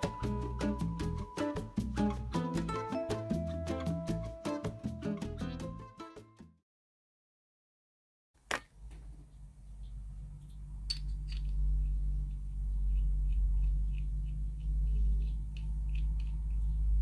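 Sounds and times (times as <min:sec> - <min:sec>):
steady low hum: 0:08.7 - 0:17.0
metal pipe parts clinking: 0:10.9 - 0:11.6.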